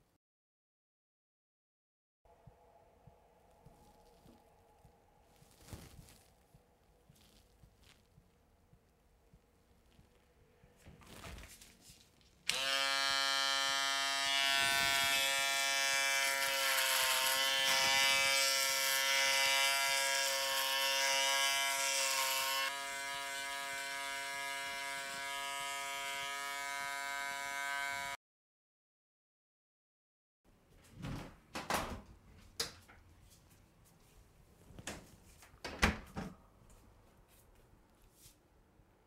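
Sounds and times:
electric shaver buzzing: 12.5 - 28.2.

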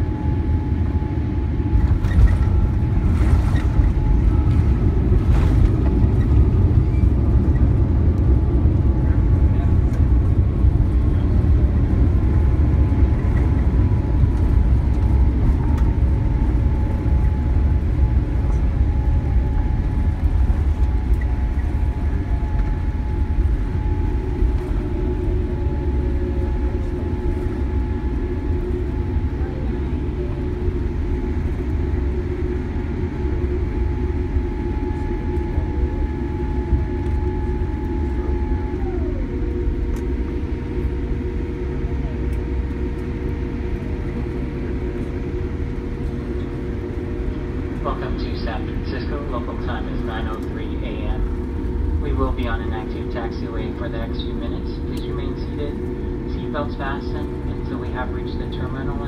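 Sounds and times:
airplane cabin rumble: 0.0 - 59.0
steady whines: 0.0 - 59.0.

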